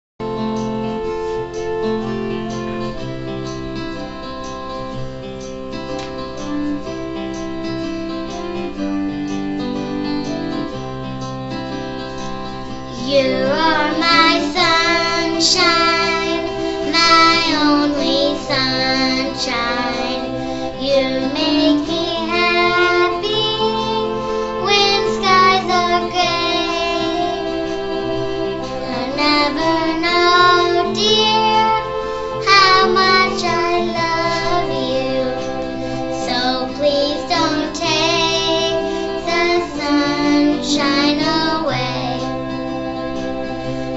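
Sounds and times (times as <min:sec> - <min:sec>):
acoustic guitar strumming: 0:00.2 - 0:43.9
instrumental accompaniment: 0:00.2 - 0:43.9
girl singing: 0:12.9 - 0:42.4.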